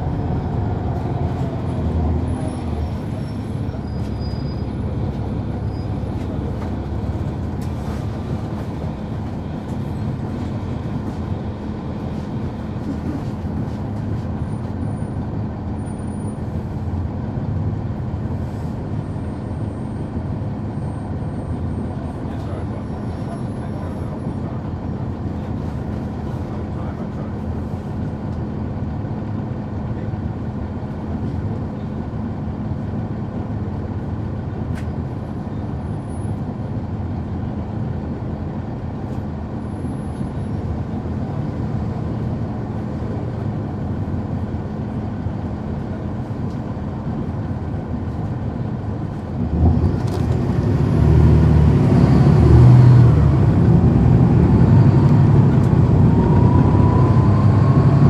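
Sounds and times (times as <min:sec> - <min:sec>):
bus diesel engine: 0:00.0 - 0:58.0
rising whine: 0:54.2 - 0:58.0.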